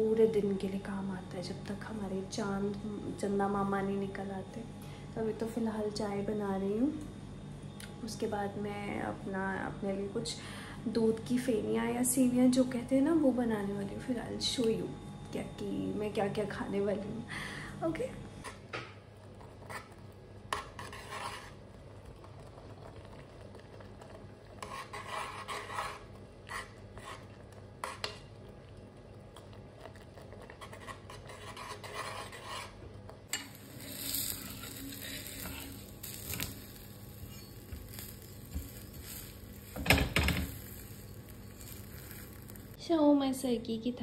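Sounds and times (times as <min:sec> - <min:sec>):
spoon stirring in a pot: 0:19.3 - 0:42.8
utensils and dishes knocking: 0:39.8 - 0:40.5.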